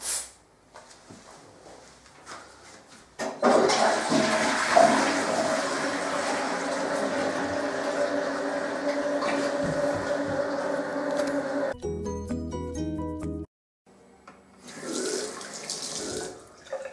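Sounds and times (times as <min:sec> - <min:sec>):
toilet flushing: 0:03.3 - 0:11.8, 0:14.6 - 0:16.9.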